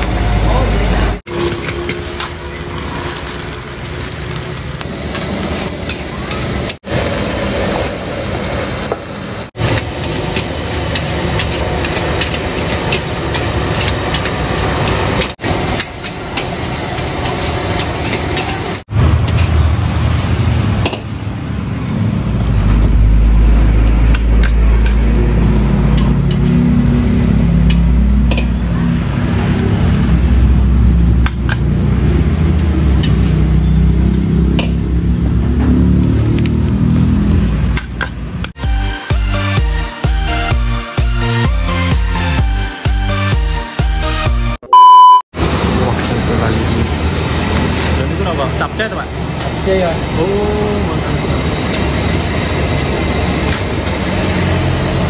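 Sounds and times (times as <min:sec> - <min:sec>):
food sizzling: 0:00.0 - 0:38.6, 0:45.4 - 0:55.0
heavy low rumble: 0:18.8 - 0:38.5.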